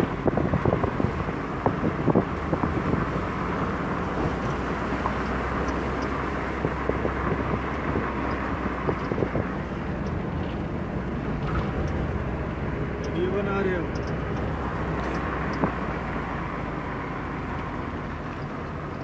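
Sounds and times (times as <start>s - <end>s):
knocks and rattles in car: 0.0s - 12.1s, 13.1s - 16.0s
low engine hum: 0.0s - 19.0s
road and wind noise: 0.0s - 19.0s.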